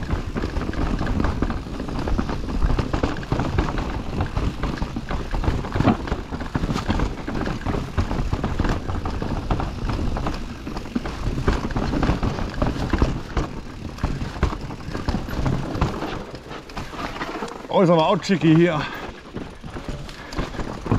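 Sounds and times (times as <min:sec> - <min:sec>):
bike rattling over rocks: 0:00.0 - 0:20.9
steady rushing noise: 0:00.0 - 0:20.9.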